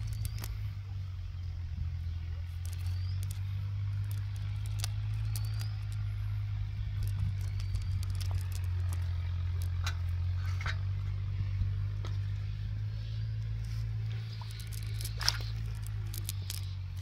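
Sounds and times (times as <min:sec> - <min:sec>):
net rustling and clicking: 0:00.0 - 0:00.6, 0:02.4 - 0:10.2, 0:13.3 - 0:17.0
steady low hum: 0:00.0 - 0:17.0.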